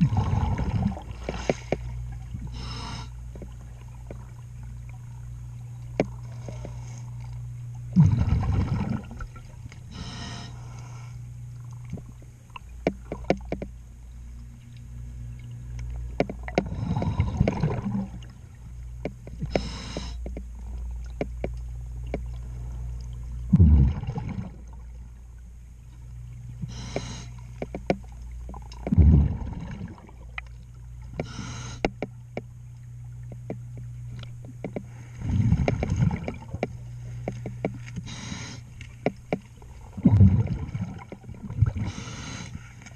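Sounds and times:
exhaust bubbles rushing: 0:00.0 - 0:01.1, 0:07.9 - 0:09.5, 0:16.4 - 0:18.3, 0:23.5 - 0:24.8, 0:28.8 - 0:30.3, 0:40.0 - 0:41.9
steady low hum: 0:00.0 - 0:42.9
clicks and scrapes on hull: 0:01.2 - 0:02.0, 0:05.8 - 0:07.5, 0:11.6 - 0:13.8, 0:19.0 - 0:23.1, 0:26.8 - 0:29.0, 0:33.2 - 0:39.7
regulator inhale hiss: 0:02.5 - 0:03.2, 0:09.9 - 0:11.3, 0:19.5 - 0:20.3, 0:26.6 - 0:27.5, 0:31.2 - 0:32.0, 0:38.0 - 0:38.8, 0:41.8 - 0:42.9.

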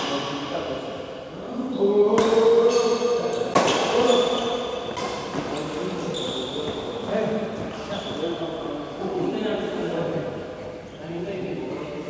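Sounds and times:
racket hitting shuttlecock: 0:03.5 - 0:05.5.

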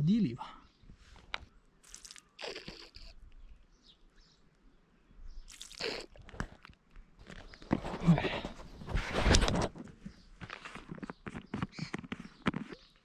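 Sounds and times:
faint crunches and rustles: 0:01.1 - 0:03.7, 0:05.5 - 0:13.0.

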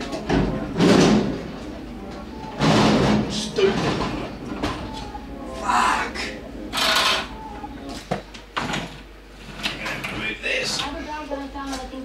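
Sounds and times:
tools scraping and rattling: 0:06.7 - 0:07.3.

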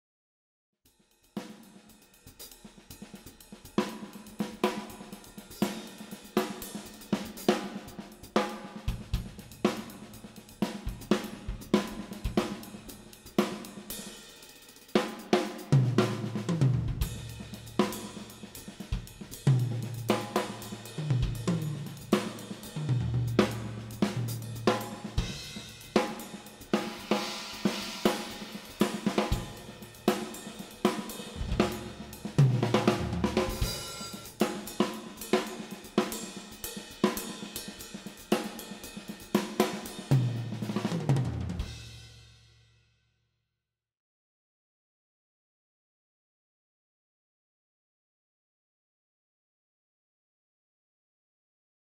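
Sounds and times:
drum kit groove: 0:01.2 - 0:42.2.

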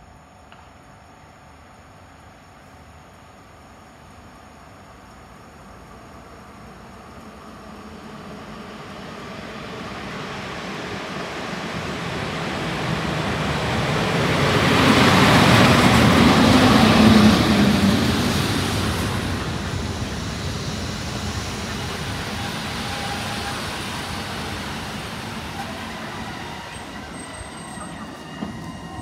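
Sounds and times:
electric locomotive humming: 0:01.2 - 0:29.0
train wheels rumbling on rails: 0:06.4 - 0:29.0.

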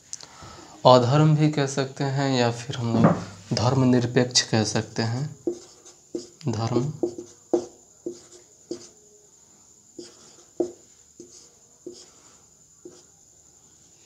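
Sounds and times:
marker pen writing on whiteboard: 0:04.8 - 0:09.0, 0:10.0 - 0:13.1.

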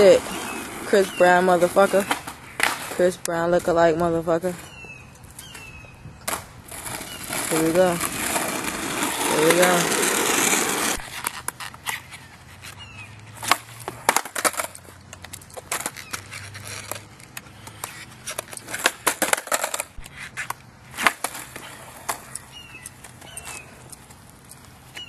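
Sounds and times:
skateboard clicks and taps: 0:13.4 - 0:25.0.

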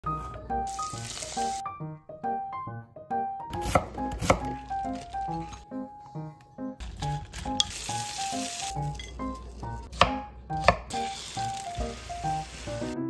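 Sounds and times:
light background music: 0:00.0 - 0:13.0
cutlets sizzling in oil: 0:00.7 - 0:01.6, 0:07.1 - 0:09.6, 0:10.9 - 0:13.0.

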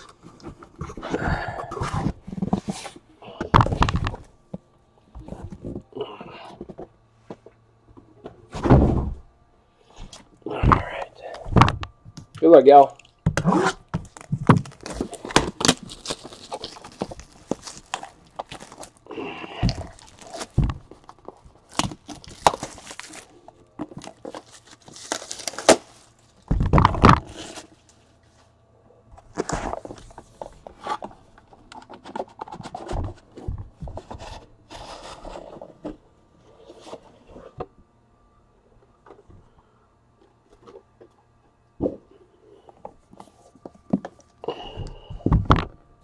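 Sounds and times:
box scraping and rustling: 0:00.4 - 0:03.1, 0:31.9 - 0:37.6.

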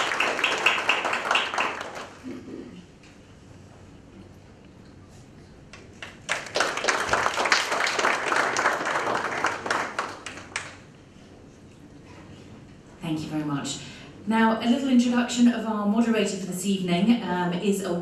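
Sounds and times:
audience applauding: 0:00.0 - 0:02.4, 0:05.9 - 0:10.8.

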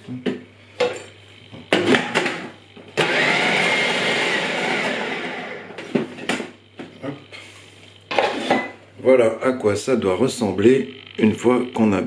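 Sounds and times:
food processor motor chopping: 0:01.5 - 0:06.5.

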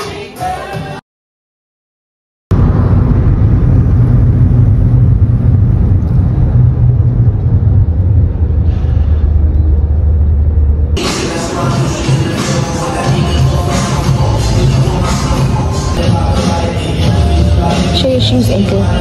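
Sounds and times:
music: 0:00.0 - 0:01.0, 0:11.0 - 0:19.0
car interior rumble: 0:02.5 - 0:11.0.

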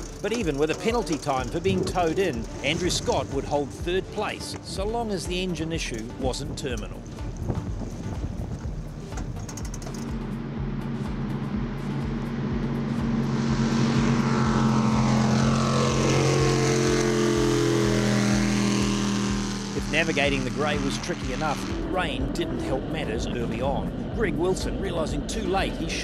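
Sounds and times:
jet boat engine and water rush: 0:00.0 - 0:26.0
wind buffeting microphone: 0:06.5 - 0:09.8.

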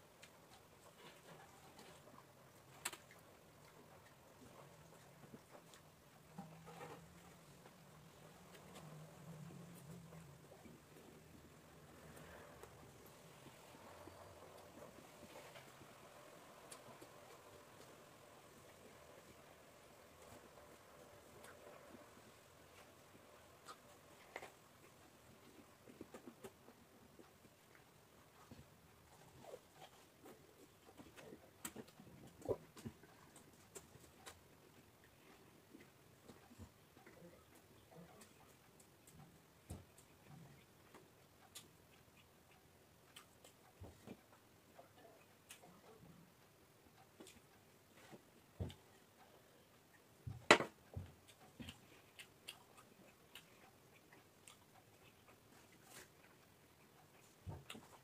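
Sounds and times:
chewing raw vegetables: 0:50.8 - 0:58.0.

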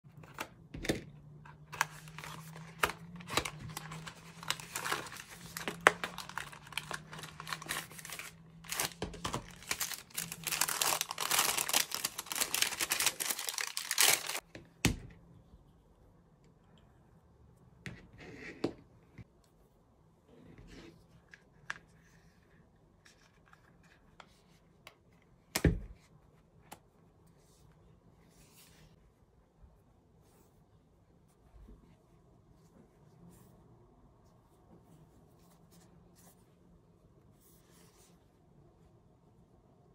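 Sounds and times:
packaging tearing and crinkling: 0:01.8 - 0:14.4.

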